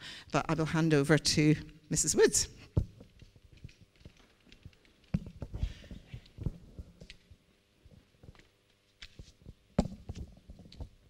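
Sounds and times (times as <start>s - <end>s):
handling thumps and knocks: 5.1s - 7.1s, 9.5s - 11.0s.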